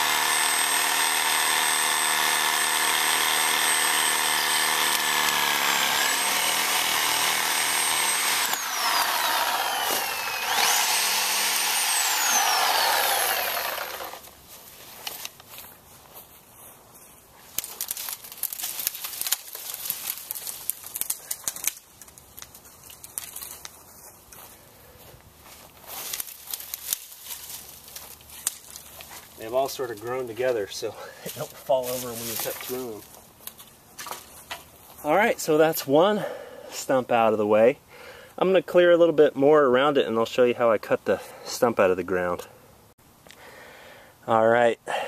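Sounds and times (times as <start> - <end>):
reciprocating saw whining: 0.0 - 14.3
scattered clicks and rustles: 17.5 - 23.8.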